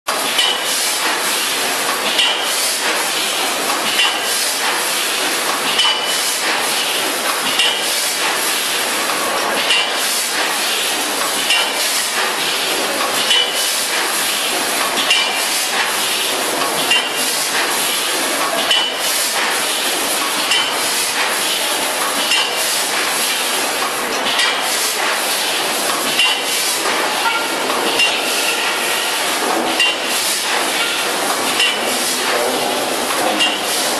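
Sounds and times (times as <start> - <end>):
machine clink: 0.1 - 1.2, 2.0 - 2.5, 3.8 - 4.8, 5.6 - 8.4, 9.1 - 10.5, 11.2 - 16.0, 16.6 - 23.1, 23.8 - 25.2, 25.9 - 28.9, 29.6 - 32.1, 33.1 - 33.9
packaging machine hiss: 0.1 - 33.9.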